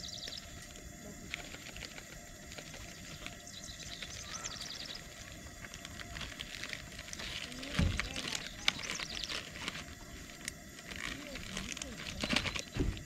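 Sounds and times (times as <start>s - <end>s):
bird calling: 2.8s - 5.5s, 7.1s - 9.9s.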